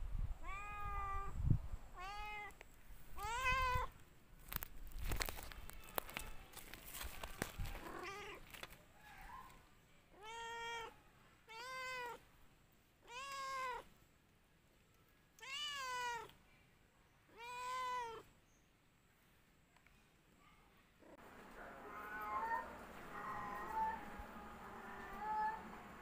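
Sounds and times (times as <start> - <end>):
cat meowing: 0.4 - 1.3, 2.0 - 2.6, 3.2 - 3.9, 7.8 - 8.4, 10.1 - 12.2, 13.0 - 13.9, 15.4 - 16.4, 17.3 - 18.3, 21.8 - 25.7.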